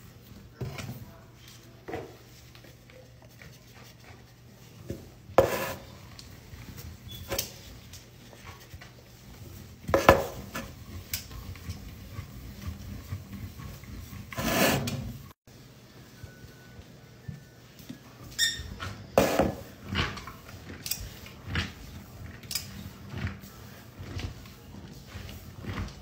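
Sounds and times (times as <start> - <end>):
fingers rubbing powder in bowl: 8.1 - 14.8.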